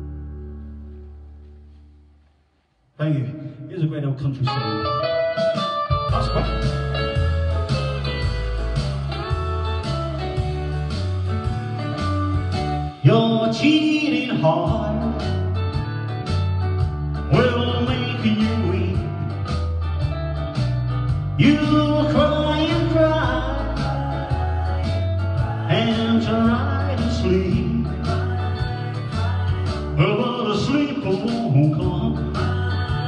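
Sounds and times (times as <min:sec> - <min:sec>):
backing track of guitar and bass: 0:00.0 - 0:03.5, 0:04.2 - 0:33.0
man singing country-blues: 0:12.9 - 0:15.6, 0:17.2 - 0:19.5, 0:21.4 - 0:33.0.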